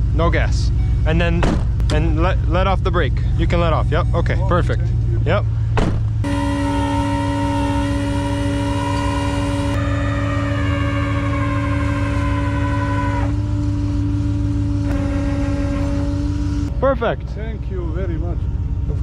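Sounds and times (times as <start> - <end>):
truck engine rumbling: 0.0 - 19.0
winch whining: 5.6 - 16.7.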